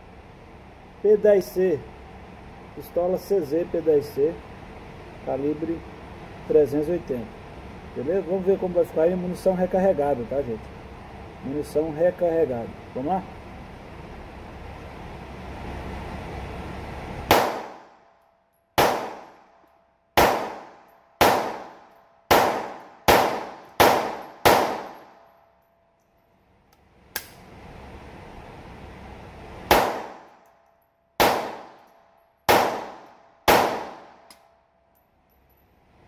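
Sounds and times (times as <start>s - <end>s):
pistol shots echoing indoors: 17.3s - 18.0s, 18.8s - 25.6s, 29.7s - 30.4s, 31.2s - 34.6s.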